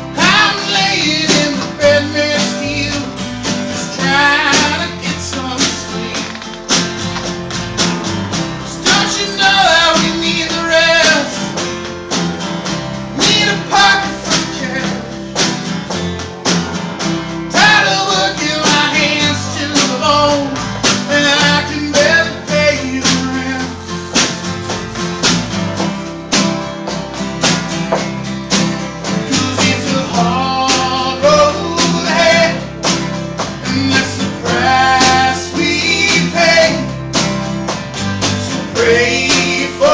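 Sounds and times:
man singing: 0.0 - 6.5, 8.6 - 11.6, 13.1 - 15.2, 17.5 - 23.9, 29.2 - 32.9, 33.6 - 37.2, 38.4 - 39.9
strummed acoustic guitars: 0.0 - 39.9
snare drum beat: 4.4 - 9.3, 9.9 - 22.2, 24.2 - 31.2, 31.8 - 39.8.

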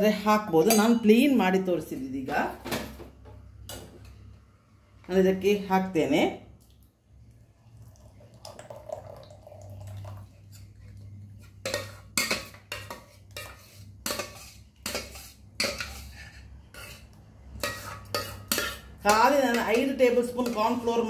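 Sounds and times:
milk pouring into glass bowl: 6.6 - 11.0.

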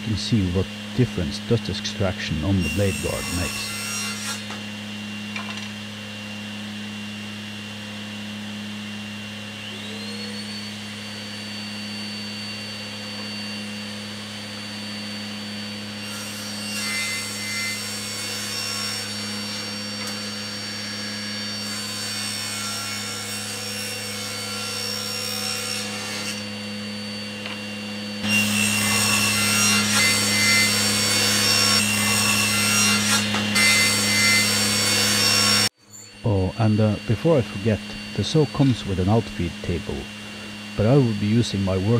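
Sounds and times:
shop vacuum whine: 0.0 - 41.9
table saw ripping boards: 2.4 - 4.6, 16.0 - 26.5, 28.2 - 35.7
motor hum: 24.4 - 41.9.

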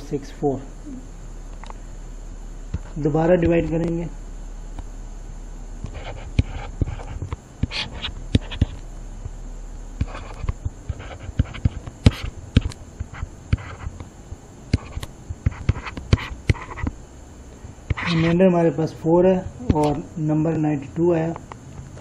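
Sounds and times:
soft scratchy writing noises: 5.8 - 8.8, 10.0 - 14.0, 14.7 - 16.9, 17.9 - 18.4.

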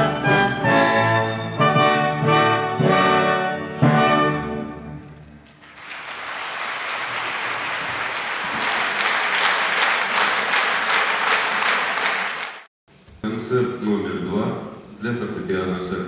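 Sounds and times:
orchestra closing chord: 0.0 - 5.4
audience applause: 5.4 - 12.7.

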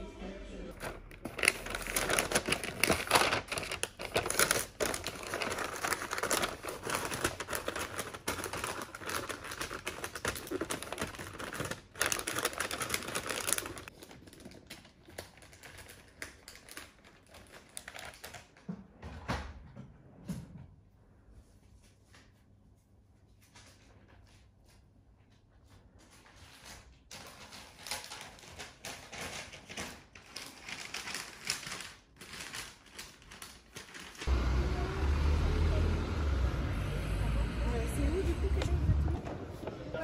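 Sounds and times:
wrapping paper crinkling: 0.8 - 18.6, 26.2 - 34.4.

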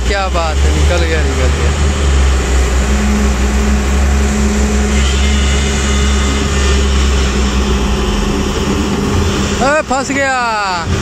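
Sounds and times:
excavator diesel engine running: 0.0 - 11.0.

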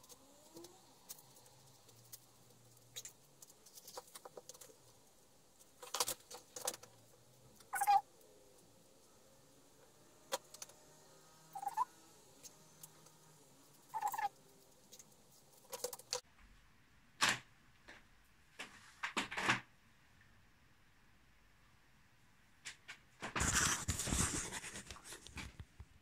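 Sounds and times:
short pitched chirps: 7.7 - 8.0, 11.6 - 11.9.

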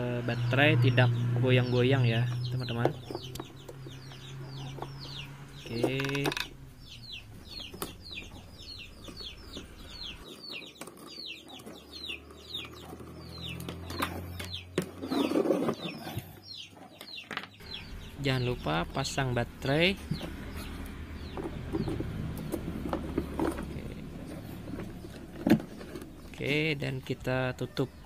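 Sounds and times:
chicks peeping: 0.0 - 28.0
chicken clucking: 6.8 - 18.0.

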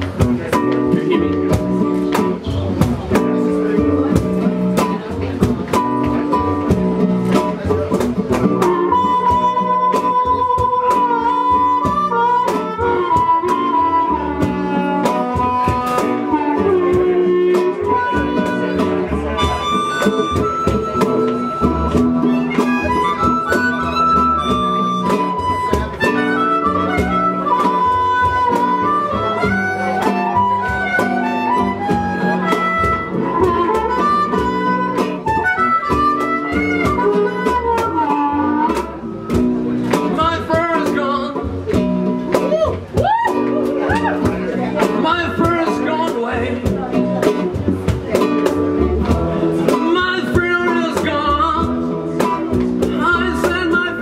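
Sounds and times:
cajon beat: 0.0 - 54.0
double bass: 0.0 - 54.0
strummed acoustic guitar: 0.0 - 54.0
blues harmonica solo: 8.5 - 39.7.

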